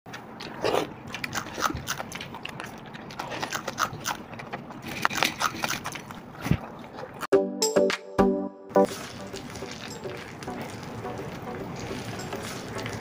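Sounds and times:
wet chewing and lip-smacking: 0.1s - 7.3s.

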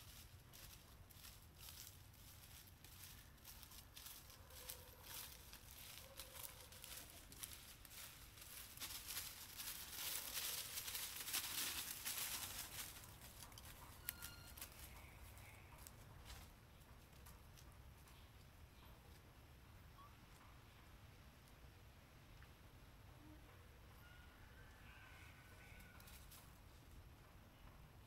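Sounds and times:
leaves and twigs rustling: 0.0s - 18.5s, 25.1s - 26.9s.

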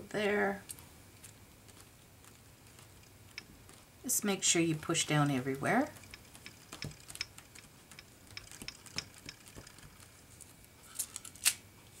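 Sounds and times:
aluminium foil crinkling: 9.6s - 11.6s.

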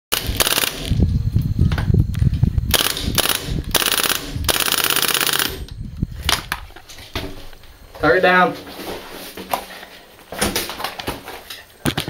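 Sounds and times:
airsoft gun bursts: 0.1s - 1.0s, 2.7s - 5.7s.

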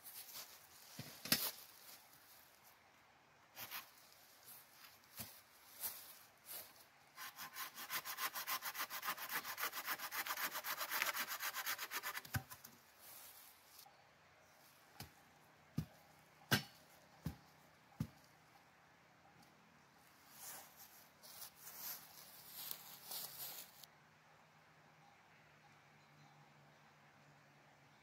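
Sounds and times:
hand saw cutting wood: 7.2s - 12.6s.

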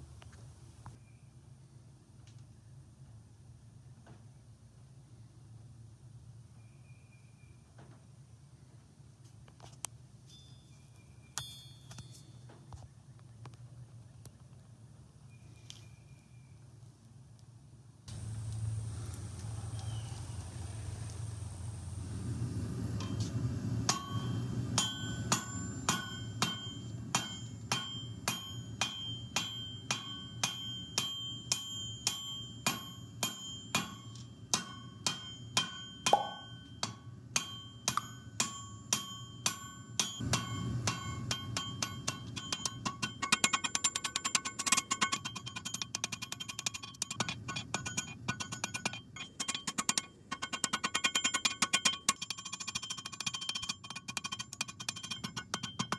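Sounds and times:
hammer ringing on anvil: 11.4s - 12.4s, 23.9s - 55.9s
low steady rumble: 16.3s - 55.9s.

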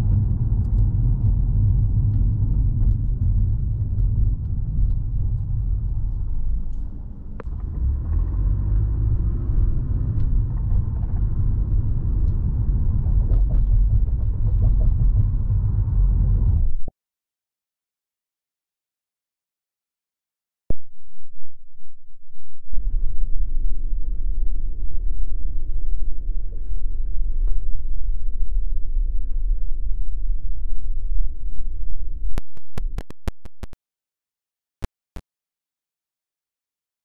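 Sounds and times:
car engine and road noise: 0.0s - 16.9s.

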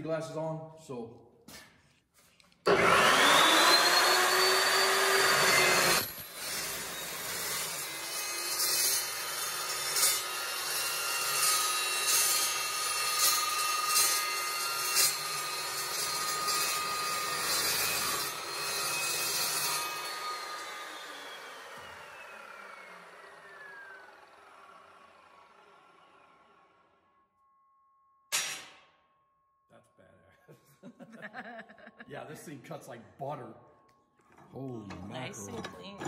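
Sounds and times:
chop saw motor whining: 2.6s - 27.2s
saw blade cutting metal tubing: 2.7s - 25.1s.

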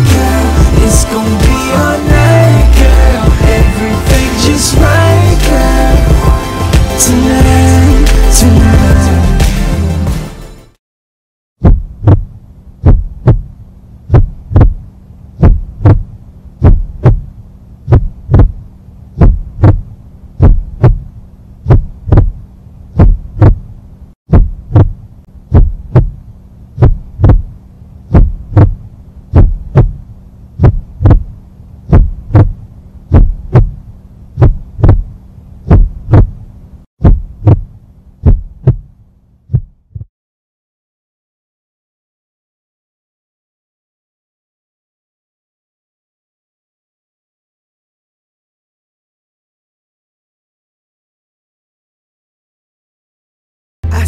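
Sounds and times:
heartbeat thumps: 0.0s - 5.0s, 5.9s - 7.7s, 11.6s - 13.5s, 14.1s - 14.8s, 15.4s - 18.6s, 19.2s - 22.4s, 23.0s - 23.7s, 24.3s - 26.2s, 26.8s - 30.0s, 30.6s - 33.8s, 34.4s - 36.4s, 37.0s - 38.9s, 39.5s - 40.1s
low steady hum: 11.7s - 40.0s.

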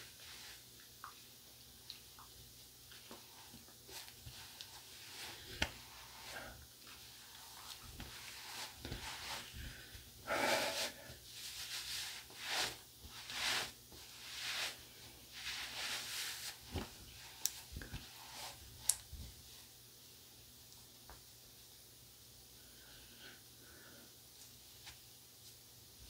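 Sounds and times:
towel rubbing swishes: 3.1s - 17.4s.

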